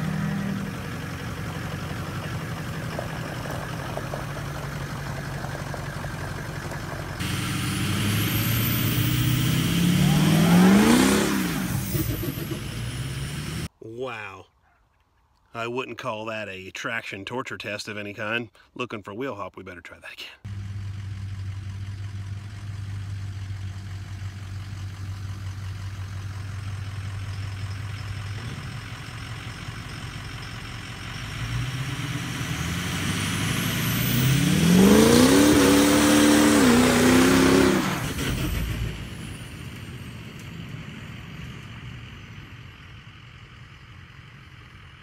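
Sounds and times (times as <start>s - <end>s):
spinning tires hissing: 0.0s - 13.7s, 20.5s - 40.0s
truck engine revving: 0.0s - 13.7s, 20.5s - 45.0s.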